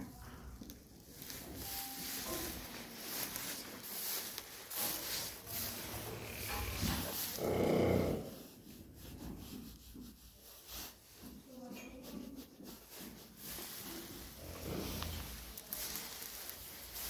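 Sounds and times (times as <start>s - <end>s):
rustling and handling noise: 0.0s - 17.0s
horse low pulsing vocal sound: 7.3s - 8.4s.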